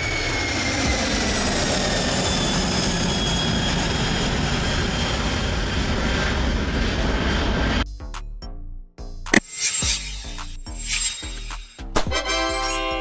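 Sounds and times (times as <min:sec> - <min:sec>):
jet engine roar: 0:00.0 - 0:07.8
whining tones sliding down: 0:09.4 - 0:11.8.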